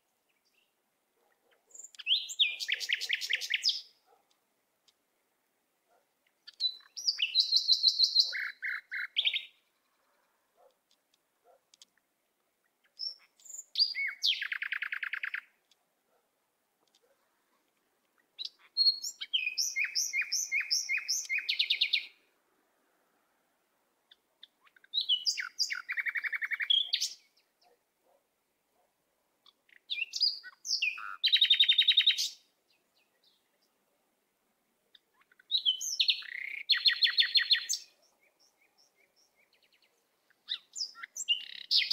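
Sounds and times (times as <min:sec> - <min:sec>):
songbird trilling: 0:01.7 - 0:03.9, 0:06.4 - 0:09.9, 0:12.8 - 0:15.5, 0:18.4 - 0:22.1, 0:24.1 - 0:27.4, 0:29.4 - 0:32.4, 0:34.9 - 0:41.9.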